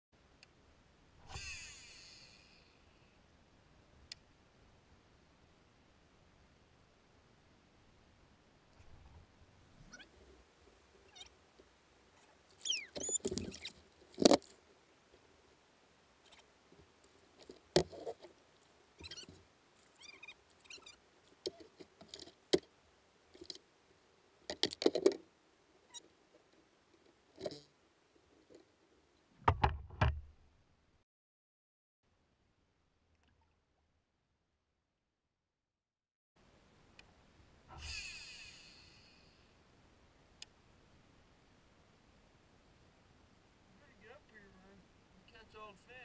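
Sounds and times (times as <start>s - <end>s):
squeaky glide: 12.2s - 13.8s, 19.0s - 21.7s, 37.7s - 39.3s
fishing gear knocking and rattling: 13.0s - 14.6s, 21.3s - 22.7s, 23.3s - 23.6s, 24.5s - 25.3s, 27.0s - 27.7s.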